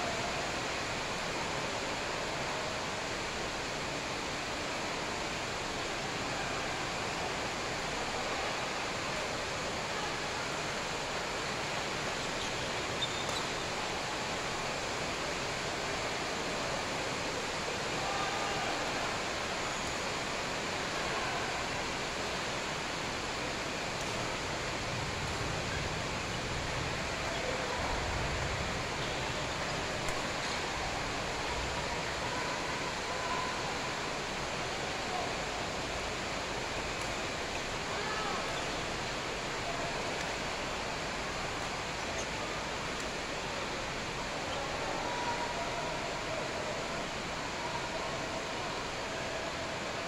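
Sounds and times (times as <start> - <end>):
indoor hall hiss: 0.0 - 50.0
faint voices: 13.7 - 50.0.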